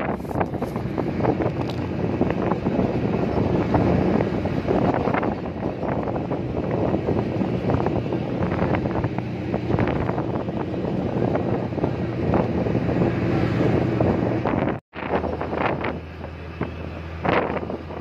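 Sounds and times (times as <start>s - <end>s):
vehicle engine and road rumble: 0.0s - 18.0s
wind buffeting microphone: 0.0s - 18.0s.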